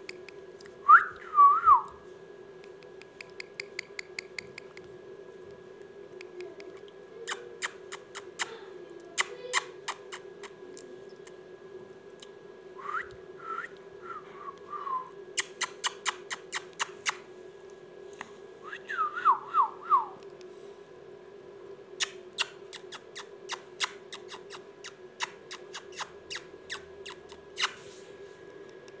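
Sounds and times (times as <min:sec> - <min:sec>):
steady low hum: 0:00.0 - 0:29.0
sharp clicks: 0:02.6 - 0:04.9
short falling whistles: 0:12.8 - 0:15.1.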